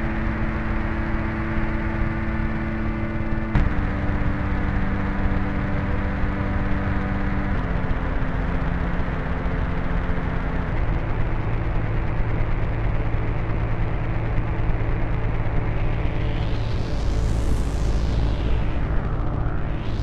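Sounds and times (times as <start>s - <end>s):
rumbling noise wash: 11.3s - 20.0s
sustained low tones: 15.8s - 20.0s.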